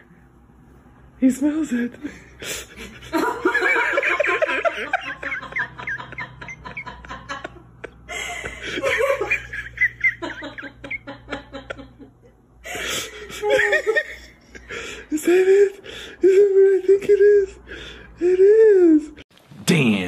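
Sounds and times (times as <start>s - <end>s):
person laughing: 2.0s - 19.2s.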